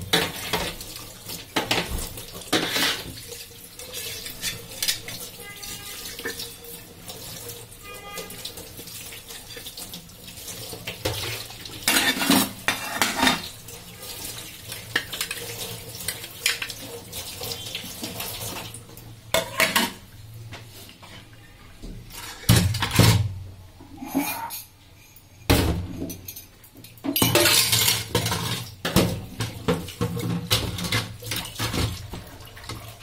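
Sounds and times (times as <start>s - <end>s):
tap water running into sink: 0.0s - 20.0s, 26.1s - 33.0s
dishes clattering: 1.5s - 5.2s, 11.0s - 13.5s, 14.9s - 16.8s, 19.3s - 20.0s, 22.1s - 23.3s, 23.9s - 24.8s, 25.4s - 32.8s.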